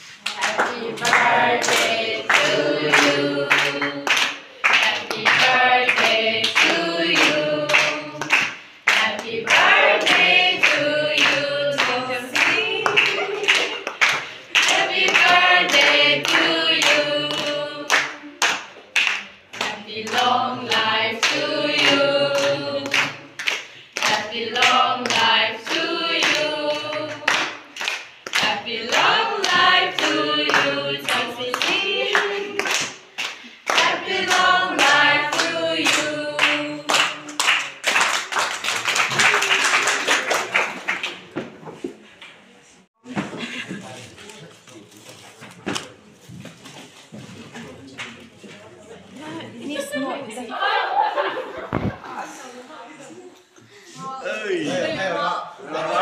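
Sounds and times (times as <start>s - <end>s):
people clapping along: 0.0s - 41.9s, 47.5s - 48.6s
group singing unaccompanied: 0.3s - 18.5s, 19.6s - 37.6s, 53.9s - 56.0s.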